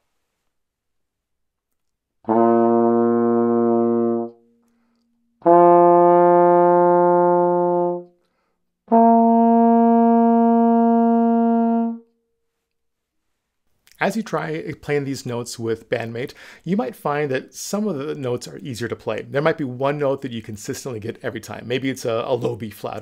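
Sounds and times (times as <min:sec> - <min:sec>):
trombone notes: 0:02.2 - 0:04.4, 0:05.4 - 0:08.1, 0:08.9 - 0:12.1.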